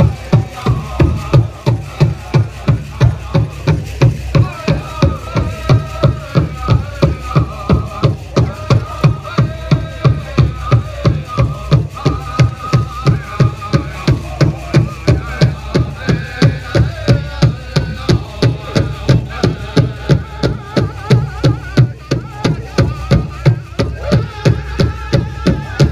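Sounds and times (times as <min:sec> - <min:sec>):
group singing: 0:00.0 - 0:25.9
steady drumbeat: 0:00.0 - 0:25.9.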